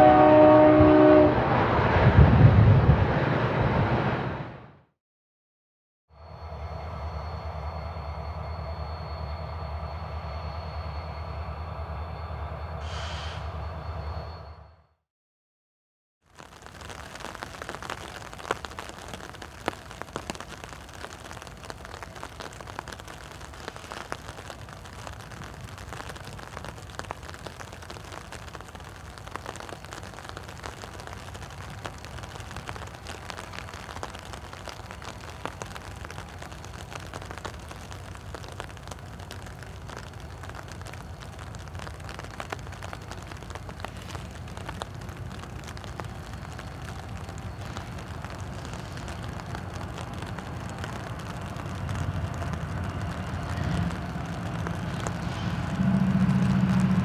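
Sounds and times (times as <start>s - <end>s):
steady rain falling: 0.0s - 1.8s, 16.2s - 57.0s
diesel locomotive rumble: 0.0s - 4.7s, 43.7s - 57.0s.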